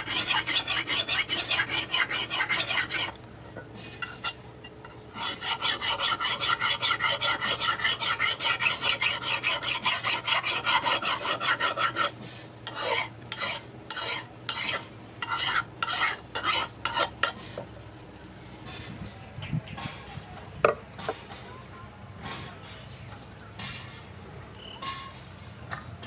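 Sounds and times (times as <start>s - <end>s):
file rasping on steel: 0.0s - 3.2s, 3.9s - 4.4s, 5.1s - 17.6s.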